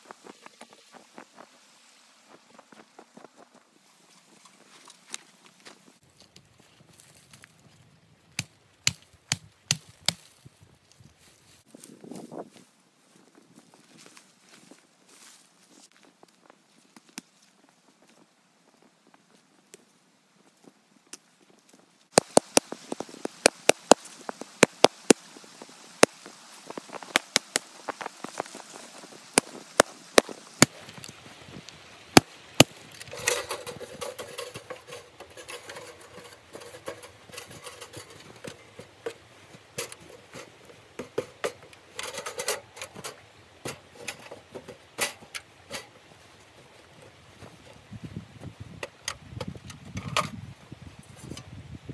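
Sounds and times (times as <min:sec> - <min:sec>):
dry branches snapping: 0:08.3 - 0:10.5, 0:22.1 - 0:25.3, 0:26.0 - 0:31.2
metal camp stove clinking: 0:32.6 - 0:46.0, 0:50.0 - 0:50.3.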